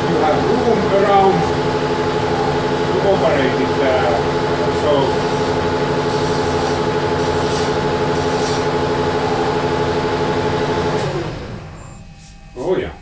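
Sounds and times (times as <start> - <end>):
metal lathe humming: 0.0 - 12.0
file scraping spinning metal: 4.8 - 9.8.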